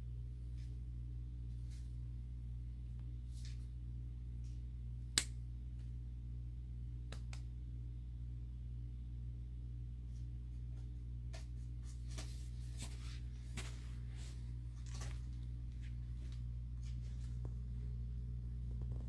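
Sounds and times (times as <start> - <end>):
steady low hum: 0.0 - 19.0
rabbit nibbling clicks and rustles: 10.1 - 19.0.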